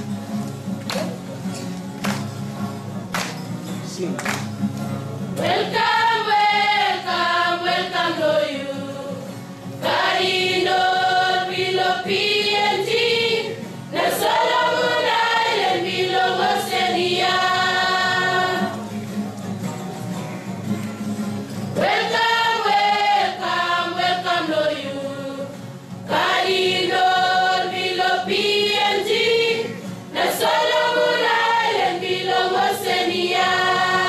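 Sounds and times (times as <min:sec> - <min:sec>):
women singing together: 0:05.4 - 0:18.9, 0:21.7 - 0:34.0.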